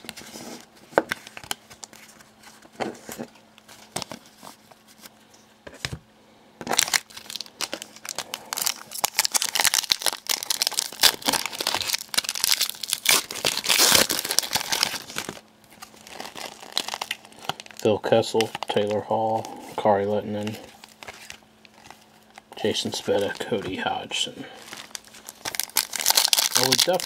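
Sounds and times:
foil wrapper crinkling and tearing: 0:06.6 - 0:27.0.

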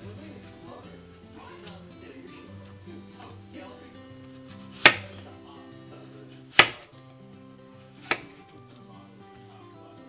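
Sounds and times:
knife striking cutting board: 0:04.7 - 0:05.2, 0:06.5 - 0:07.0, 0:08.0 - 0:08.5.

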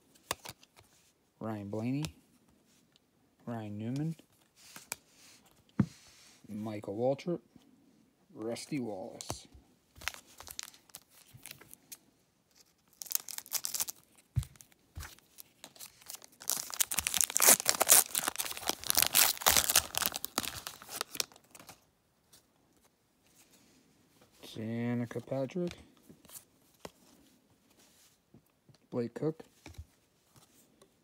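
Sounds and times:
foil wrapper crinkling and tearing: 0:10.0 - 0:11.8, 0:12.6 - 0:21.8.

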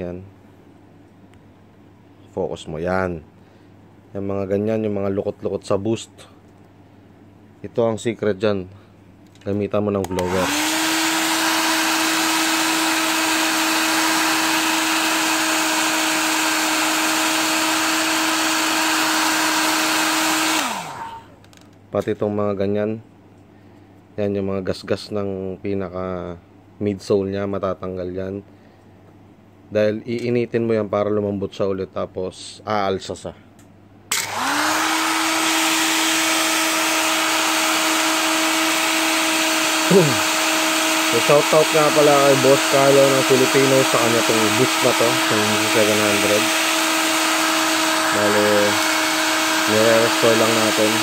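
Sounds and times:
hair dryer running: 0:10.0 - 0:21.4, 0:34.1 - 0:51.0.

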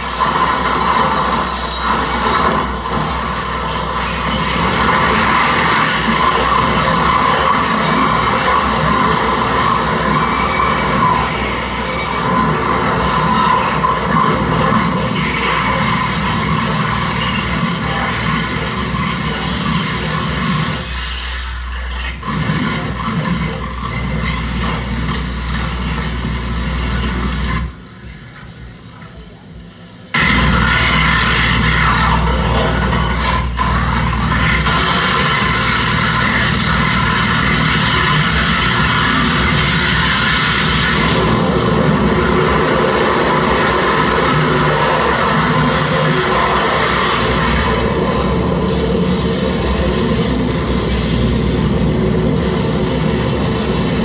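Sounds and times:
harsh noise music: 0:00.0 - 0:54.0
heavy low drone: 0:00.0 - 0:54.0
low rumble: 0:30.2 - 0:54.0.

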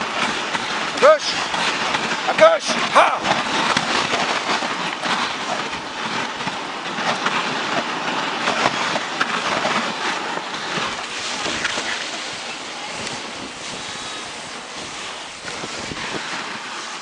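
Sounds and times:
sled runners scraping over snow: 0:00.0 - 0:17.0.

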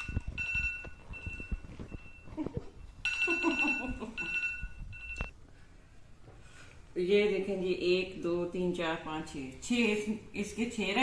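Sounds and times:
timer alarm beeping: 0:00.0 - 0:05.3.

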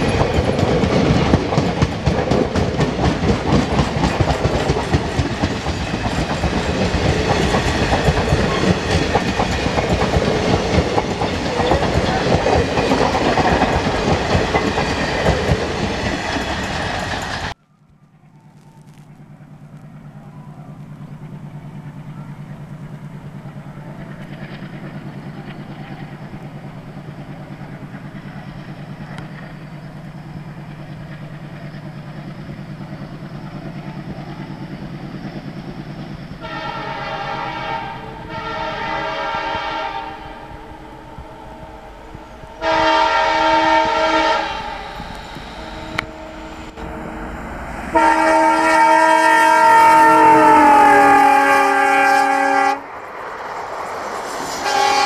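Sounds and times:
diesel locomotive engine hum: 0:00.0 - 0:55.0
train horn blasts: 0:36.4 - 0:52.9, 0:54.6 - 0:55.0.

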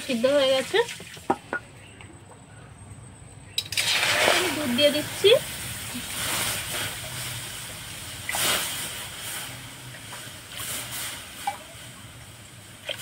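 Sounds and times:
milk hissing in hot pan: 0:03.7 - 0:13.0.

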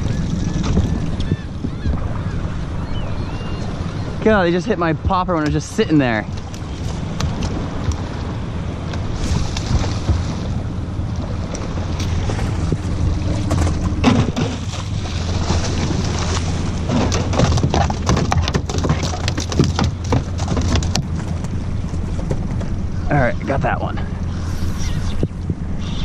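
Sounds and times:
wind on microphone: 0:00.0 - 0:05.4, 0:06.1 - 0:26.0
outboard motor idling: 0:06.3 - 0:24.3.

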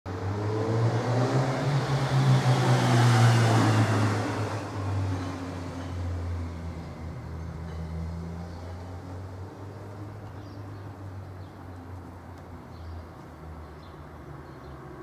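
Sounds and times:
vehicle engine passing: 0:00.1 - 0:05.2.

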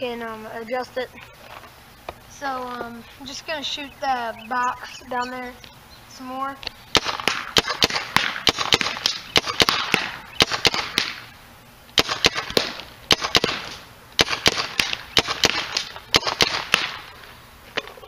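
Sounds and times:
paintball gun firing: 0:06.9 - 0:11.4, 0:12.0 - 0:17.1.

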